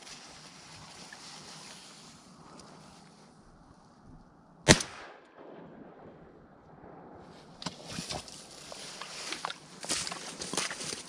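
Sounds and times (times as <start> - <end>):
shotgun shot: 4.7 - 6.3.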